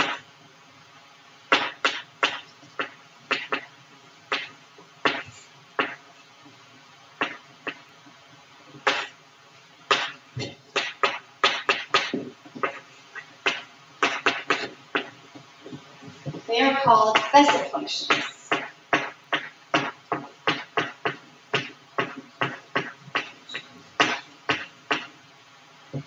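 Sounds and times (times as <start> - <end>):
chalk tapping and scraping: 4.3 - 6.0, 9.9 - 25.2.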